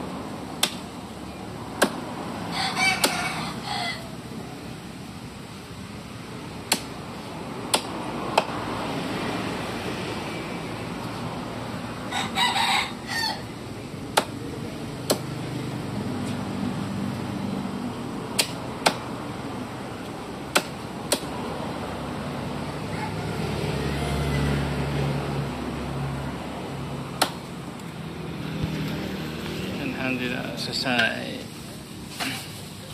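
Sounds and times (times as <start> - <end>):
cleaver chopping on wooden block: 0.6 - 0.9, 1.7 - 2.1, 6.6 - 7.0, 7.6 - 8.6, 14.1 - 14.4, 15.0 - 15.4, 18.3 - 19.1, 20.5 - 21.4, 27.2 - 27.4
rooster crowing: 2.5 - 4.1, 12.1 - 13.5, 22.8 - 24.5.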